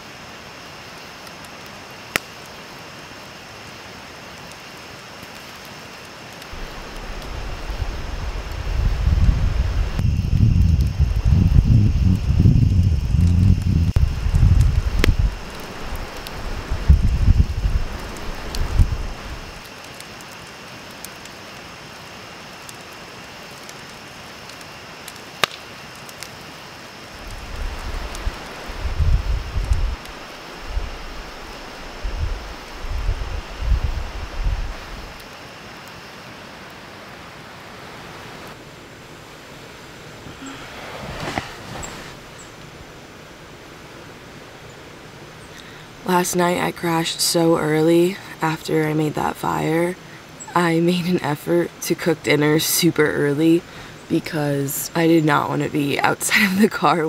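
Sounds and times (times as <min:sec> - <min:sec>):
campfire popping: 0:00.4 - 0:44.1
creek rushing: 0:06.5 - 0:10.0, 0:14.0 - 0:19.7, 0:27.2 - 0:46.2
wind rumble on microphone: 0:06.5 - 0:19.7, 0:27.2 - 0:35.2.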